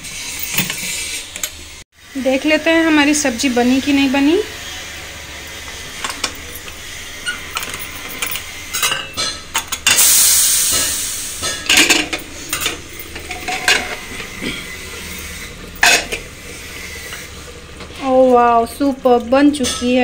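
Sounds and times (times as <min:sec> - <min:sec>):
steam hissing from pressure cooker: 0:00.0 - 0:18.7.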